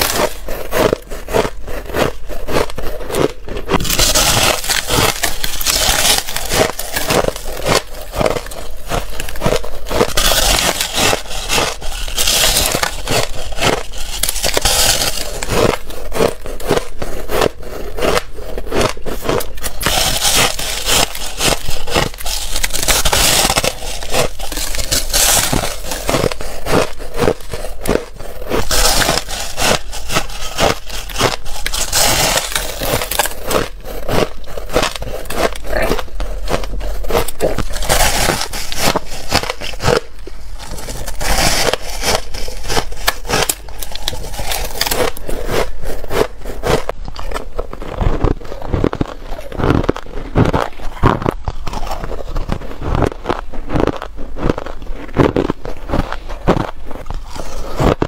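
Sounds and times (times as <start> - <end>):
ice crunching while chewed: 0.0 - 58.0.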